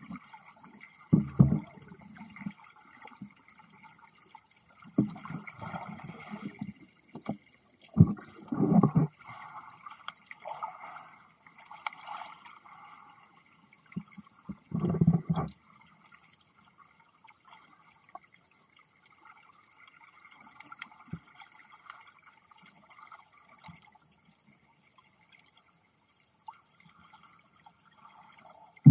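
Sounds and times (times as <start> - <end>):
muffled underwater movement: 0.0 - 16.4, 26.4 - 28.9
underwater rumbling bursts: 8.0 - 9.2.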